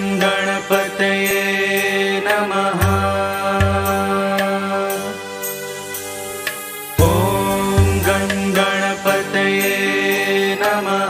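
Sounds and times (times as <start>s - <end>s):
sustained drone chord: 5.2s - 11.0s.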